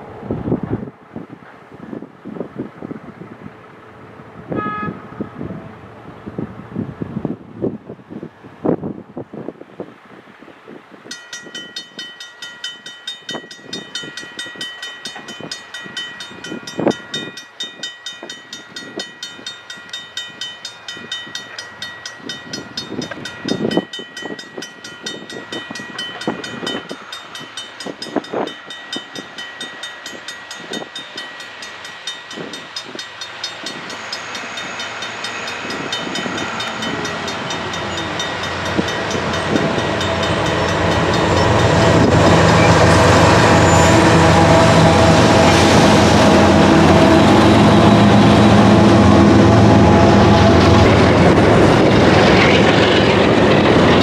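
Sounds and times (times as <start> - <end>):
train wheels whining on rails: 0.0 - 54.0
train wheels knocking: 11.2 - 43.8, 44.4 - 54.0
locomotive rumble: 12.4 - 54.0.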